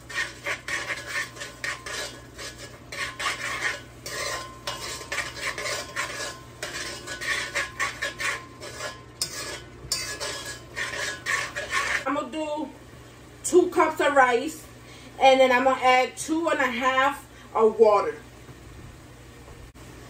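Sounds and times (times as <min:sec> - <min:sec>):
spoon scraping a metal pot: 0:00.0 - 0:12.2
light sizzle: 0:00.0 - 0:15.2.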